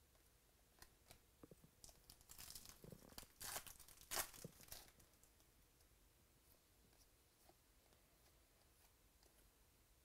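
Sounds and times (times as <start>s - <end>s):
wrapper crinkling and ripping: 1.8s - 5.2s.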